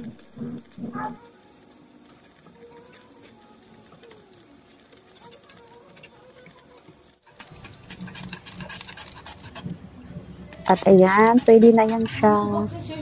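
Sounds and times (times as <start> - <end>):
whisk scraping metal saucepan: 10.7 - 12.4.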